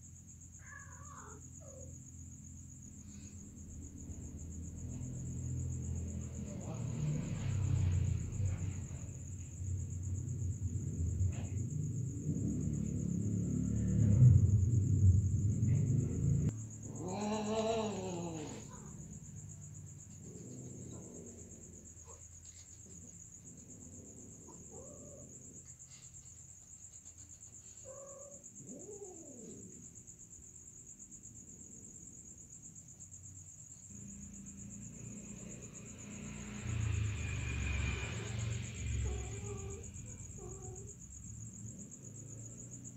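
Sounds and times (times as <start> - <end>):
cricket trill: 0.0 - 42.9
cat yowling: 0.6 - 1.9, 16.9 - 19.0, 38.9 - 41.0
low rumble: 3.6 - 16.8
cat meowing: 17.0 - 18.8.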